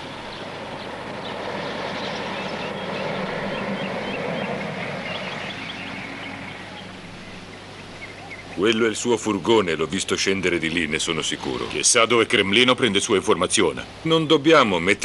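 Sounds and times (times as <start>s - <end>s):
car driving past: 0.0s - 7.0s.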